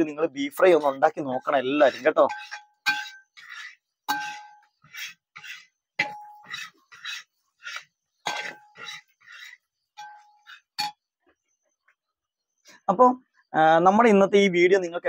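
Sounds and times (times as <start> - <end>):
metal spoon scraping meat in pan: 0.4 - 10.9
spoon clinking against metal pan: 2.3 - 3.3.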